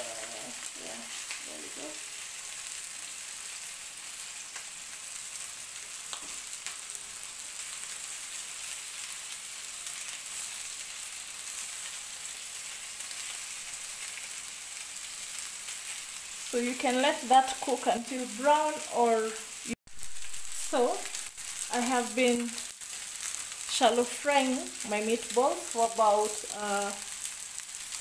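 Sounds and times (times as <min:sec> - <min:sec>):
meatballs sizzling in oil: 0:00.0 - 0:28.0.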